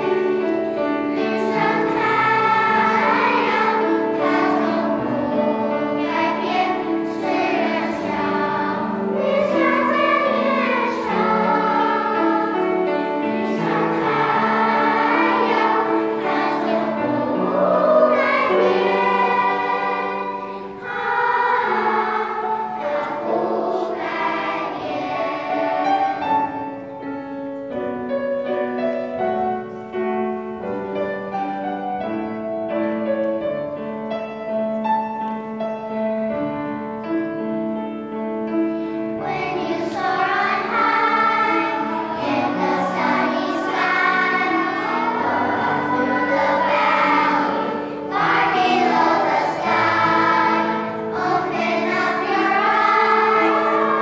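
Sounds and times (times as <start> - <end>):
children's choir singing: 0.0 - 54.0.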